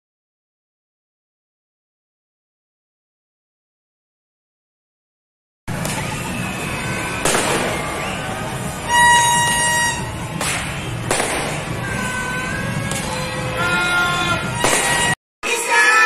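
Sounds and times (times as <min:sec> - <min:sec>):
sharp bangs: 0:05.7 - 0:13.7, 0:14.4 - 0:15.2
crowd hubbub: 0:05.7 - 0:16.0
loud horn note: 0:06.0 - 0:15.2.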